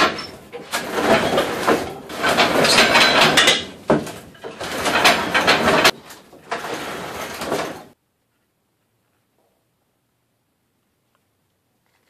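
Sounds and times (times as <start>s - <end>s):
wooden roll-up door rattling: 0.0s - 8.0s.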